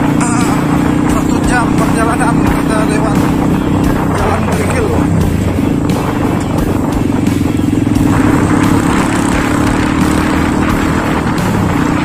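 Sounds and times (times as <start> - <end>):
small motorcycle engine running: 0.0 - 12.0
tyres on gravel road: 0.0 - 12.0
wind rushing: 0.0 - 12.0.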